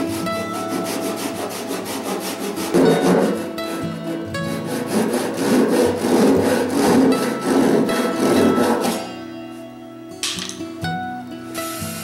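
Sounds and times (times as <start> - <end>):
hand saw cutting wood: 0.0 - 9.1.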